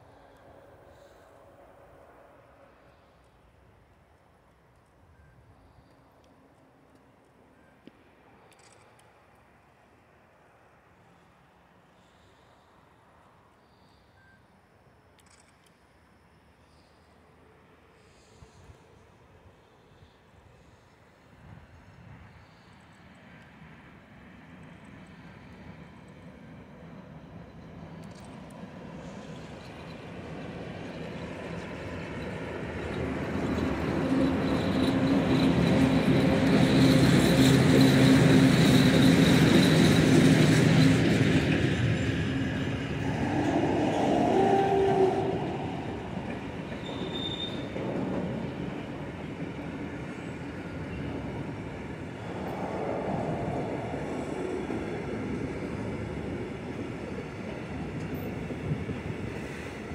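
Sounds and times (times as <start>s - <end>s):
electric locomotive humming: 16.6s - 59.9s
wheel squeals: 46.2s - 47.8s.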